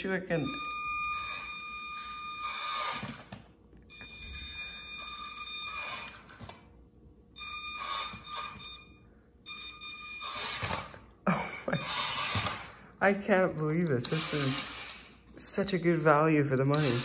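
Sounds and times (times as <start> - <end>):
toy truck electric motor whining: 1.0 - 3.3, 7.4 - 8.6, 10.0 - 11.0, 11.8 - 12.7, 14.0 - 15.2, 16.7 - 17.0.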